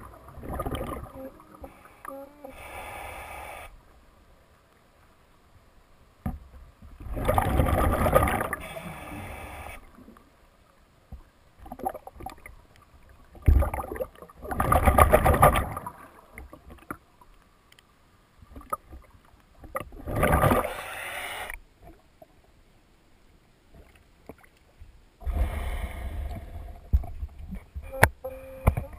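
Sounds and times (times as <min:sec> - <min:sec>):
water sloshing and splashing: 0:00.0 - 0:01.8, 0:06.3 - 0:08.8, 0:11.1 - 0:17.4, 0:18.4 - 0:20.8
underwater breath bubbles: 0:07.1 - 0:10.0, 0:20.0 - 0:21.6, 0:25.2 - 0:27.1.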